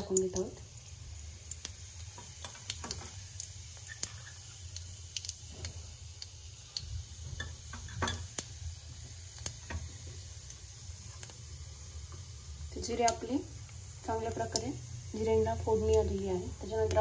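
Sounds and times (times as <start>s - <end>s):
seeds popping and crackling: 0.0s - 7.0s
seeds sizzling in hot oil: 0.0s - 17.0s.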